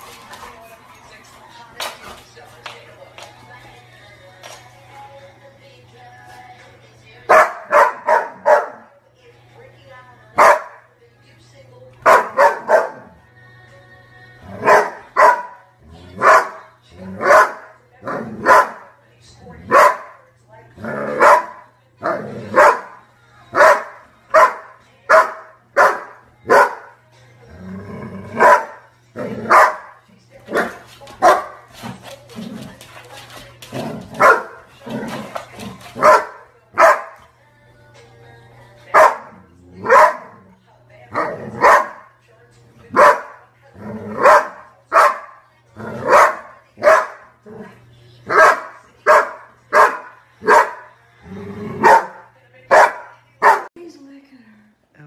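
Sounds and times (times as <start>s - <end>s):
dog barking: 7.3s - 8.9s, 10.4s - 10.8s, 12.0s - 13.1s, 14.6s - 15.6s, 16.2s - 18.9s, 19.7s - 20.2s, 21.1s - 23.0s, 23.6s - 26.9s, 28.4s - 31.6s, 34.2s - 34.6s, 35.9s - 37.2s, 38.9s - 40.4s, 41.2s - 42.1s, 42.9s - 43.4s, 44.2s - 45.4s, 46.0s - 47.3s, 48.3s - 50.9s, 51.8s - 53.7s.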